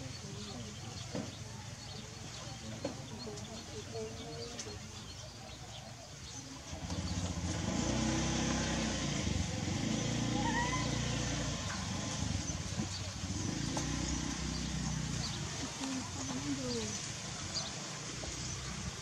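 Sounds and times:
motor engine running: 0:06.6 - 0:19.0.

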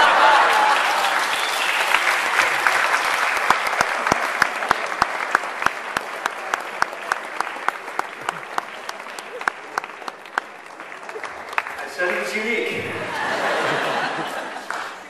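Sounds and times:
audience applauding: 0:00.0 - 0:15.0
close hands clapping steadily: 0:00.7 - 0:12.3, 0:14.4 - 0:15.0.

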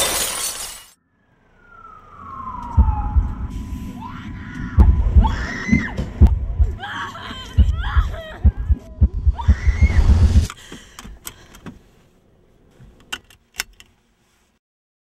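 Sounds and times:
heavy low thuds: 0:02.7 - 0:03.6, 0:04.7 - 0:06.8, 0:07.5 - 0:10.5
girl sobbing and wailing: 0:04.0 - 0:10.4
seatbelt buckle clicking: 0:10.5 - 0:11.8, 0:12.8 - 0:14.0.

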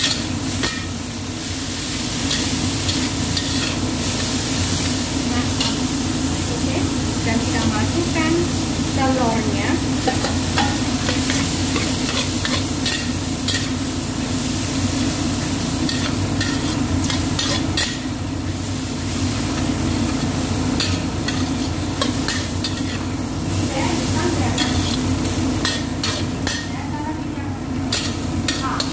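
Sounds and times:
exhaust fan humming: 0:00.0 - 0:28.9
food sizzling in a wok: 0:00.0 - 0:28.9
metal spatula scraping a pan: 0:20.8 - 0:23.1, 0:25.6 - 0:26.7.

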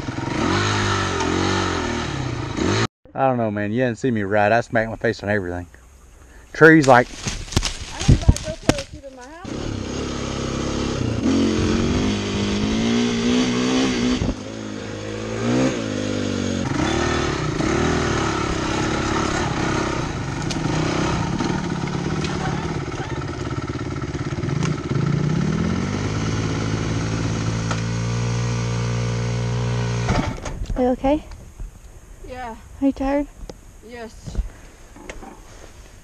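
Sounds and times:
dirt bike engine revving: 0:00.0 - 0:02.9, 0:08.4 - 0:30.4.

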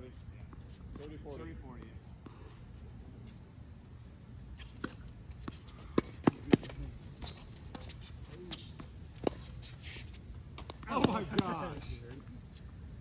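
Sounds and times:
tennis balls bouncing on court: 0:04.6 - 0:09.7, 0:10.4 - 0:12.2
rackets striking tennis balls: 0:04.7 - 0:09.8, 0:10.4 - 0:12.0.

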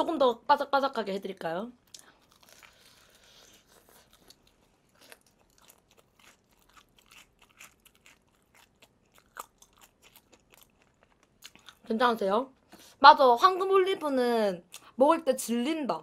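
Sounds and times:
crunchy fried chicken chewing: 0:01.8 - 0:11.9.

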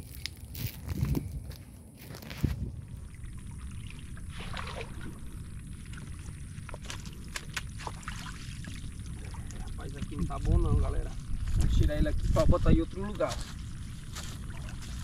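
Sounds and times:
wind rumbling on microphone: 0:00.0 - 0:15.0
water splashing and dripping: 0:02.9 - 0:10.8.

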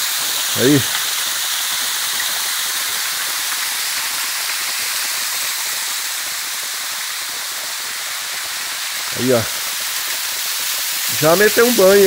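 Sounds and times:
waterfall rushing: 0:09.0 - 0:09.6.

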